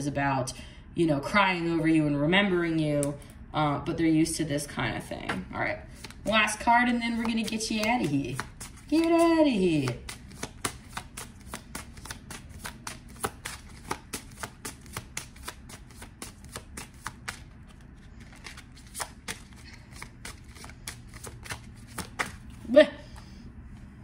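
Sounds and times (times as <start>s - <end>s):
cards being shuffled: 5.3s - 22.7s.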